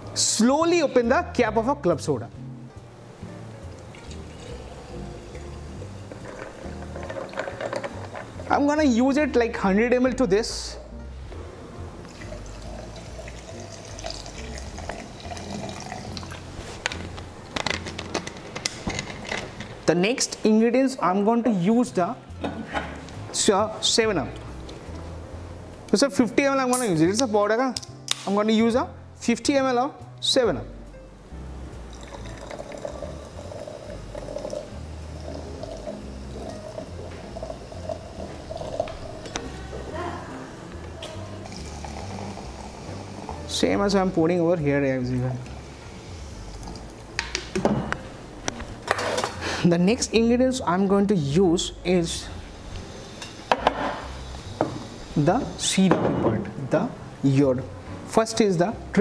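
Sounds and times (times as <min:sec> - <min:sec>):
fizzy water pouring into metal: 0:12.1 - 0:16.5, 0:31.9 - 0:39.3.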